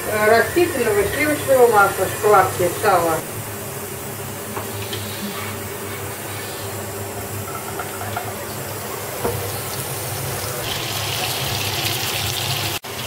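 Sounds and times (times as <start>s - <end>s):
pork fat sizzling in a frying pan: 3.6s - 13.0s.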